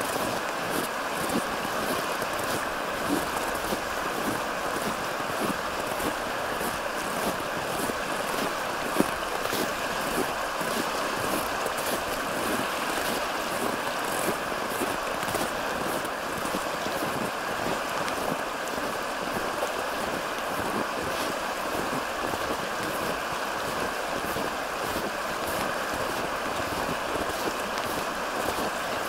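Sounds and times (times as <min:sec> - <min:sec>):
stream water rushing: 0:00.0 - 0:29.0
footsteps walking: 0:00.1 - 0:18.8.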